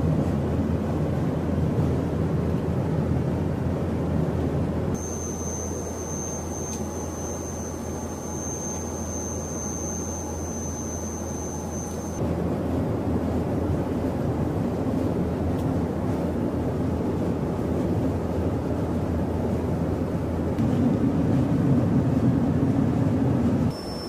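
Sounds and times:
turboprop engines droning: 0.0s - 24.0s
thin high whine: 5.0s - 12.2s, 23.7s - 24.0s.

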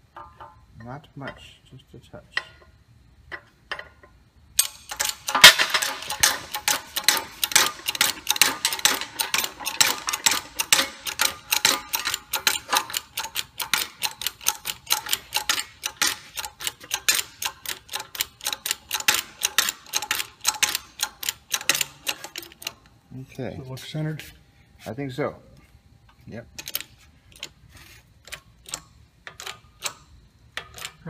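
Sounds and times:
hydraulic jack pump clicking: 4.6s - 22.9s, 28.2s - 31.0s.

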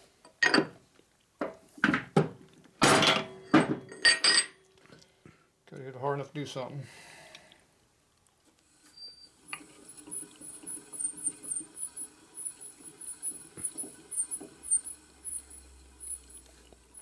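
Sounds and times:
short high squeaks: 8.8s - 9.4s.

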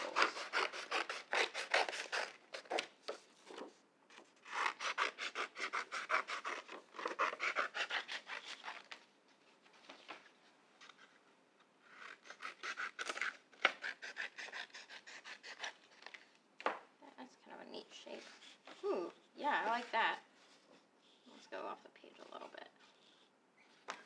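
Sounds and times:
scissors cutting paper: 0.0s - 2.9s, 4.4s - 9.0s, 11.9s - 16.2s.

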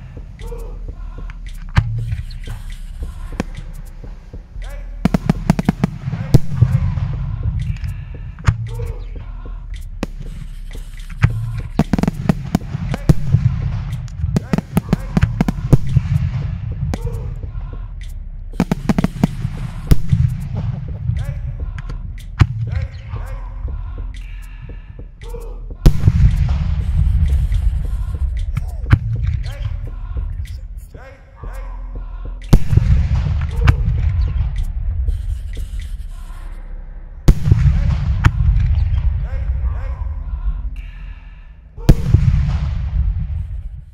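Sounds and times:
low rumble: 0.0s - 43.9s
fireworks bangs and pops: 5.0s - 7.7s, 10.0s - 17.0s, 18.6s - 21.2s, 25.9s - 29.5s, 32.5s - 34.6s, 37.3s - 39.2s.

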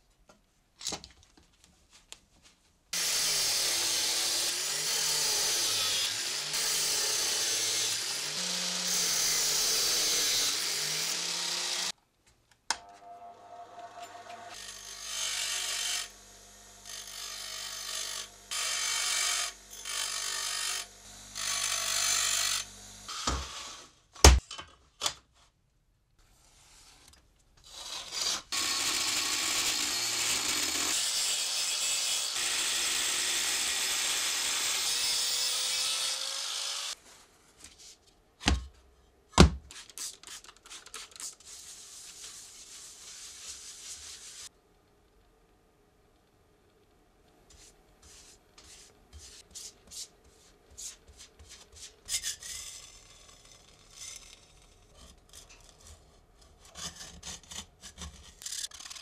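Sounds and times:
angle grinder cutting metal: 3.0s - 11.9s, 13.6s - 23.8s, 27.7s - 37.0s
bench grinder grinding metal: 3.0s - 11.9s, 13.5s - 23.8s, 28.0s - 37.0s
cloth rubbing metal sheet: 41.2s - 44.5s.

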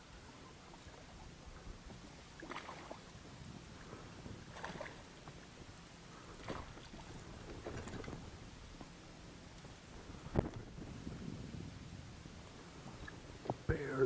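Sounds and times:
fish splashing in water: 2.4s - 3.1s, 4.5s - 5.2s, 6.4s - 8.2s.

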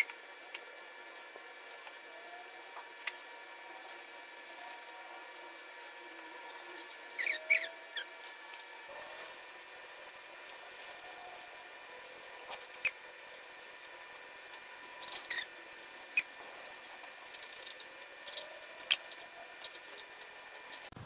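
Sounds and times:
high squeaky chirps: 6.9s - 8.2s, 15.0s - 16.3s.

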